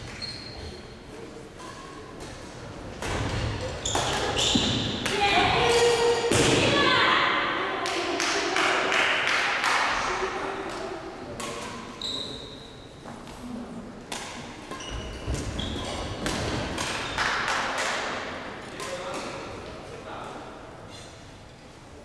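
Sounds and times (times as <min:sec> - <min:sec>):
shoe squeaks: 0:00.0 - 0:01.0, 0:03.7 - 0:05.0, 0:11.9 - 0:13.1, 0:14.7 - 0:16.2
racket hitting shuttlecock: 0:01.6 - 0:06.6, 0:10.7 - 0:11.9, 0:14.1 - 0:19.4.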